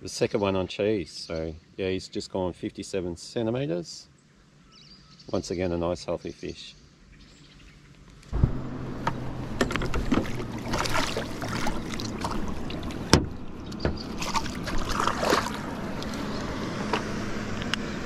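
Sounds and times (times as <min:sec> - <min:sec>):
water splashing and sloshing: 0:08.3 - 0:17.7
fish kicking in water: 0:09.1 - 0:16.6.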